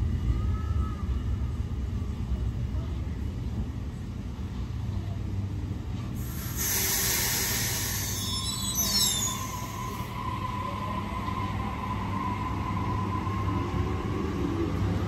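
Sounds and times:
train wheels rumbling on track: 0.0s - 15.0s
high hiss: 6.2s - 10.1s
steady whine: 6.2s - 14.0s
wheel squeals: 6.8s - 10.4s.

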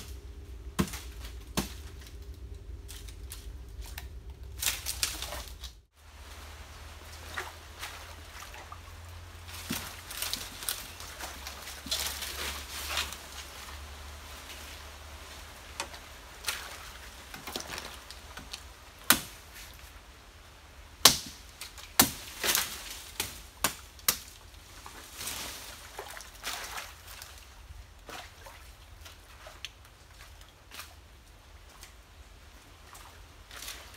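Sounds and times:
dry fronds crackling: 0.0s - 33.9s
machete chopping stalks: 0.8s - 2.0s, 9.5s - 13.2s, 17.4s - 19.7s, 21.0s - 24.4s.

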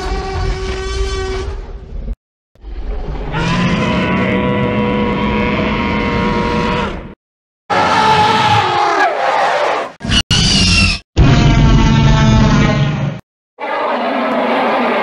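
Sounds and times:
dinosaur roars: 3.1s - 9.1s.

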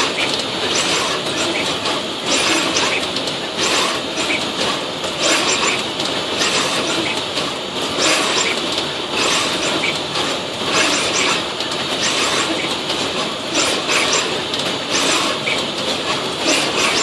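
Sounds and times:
inspection machine hiss and rumble: 0.0s - 17.0s.

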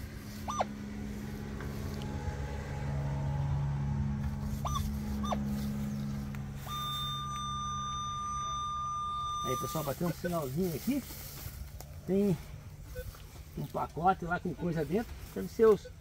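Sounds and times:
metal detector hum: 0.0s - 11.6s
metal detector chirps: 0.4s - 0.7s, 4.6s - 10.4s, 12.8s - 13.2s
metal detector high tone: 0.4s - 0.7s, 4.6s - 10.6s.

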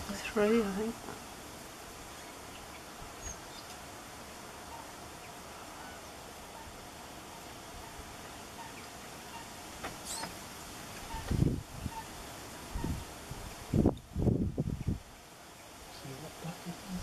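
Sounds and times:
outdoor background hiss: 0.0s - 17.0s
faint bird chirps: 2.1s - 3.8s, 4.6s - 7.5s, 8.5s - 10.4s, 11.0s - 12.1s.

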